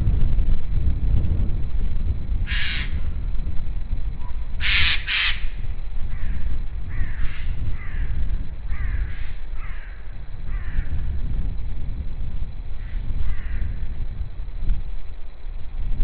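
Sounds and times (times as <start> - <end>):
steady low rumble: 0.0 - 16.0
crow cawing: 2.5 - 3.0, 4.6 - 11.0, 12.8 - 13.8.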